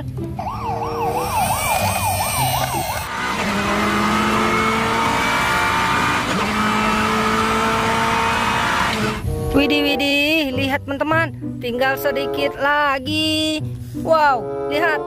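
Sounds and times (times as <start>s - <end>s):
noisy vehicle rush with tones: 0.0s - 15.0s
toy siren wailing: 0.4s - 3.1s.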